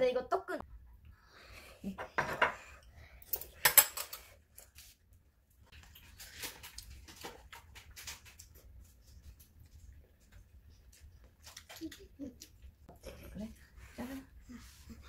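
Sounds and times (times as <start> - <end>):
forks scraping and clinking dishes: 2.3 - 4.8.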